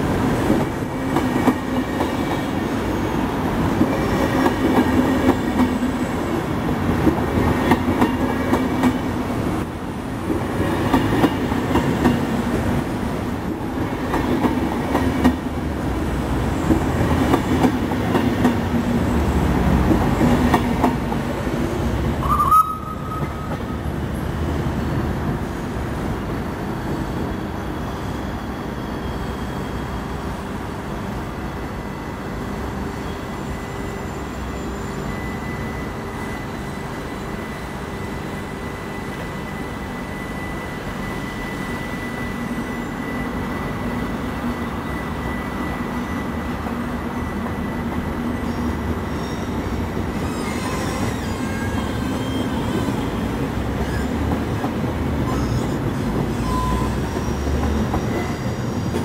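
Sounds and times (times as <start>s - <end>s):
train wheels on rails: 0.0s - 59.0s
high wheel squeal: 32.9s - 46.5s, 47.2s - 59.0s.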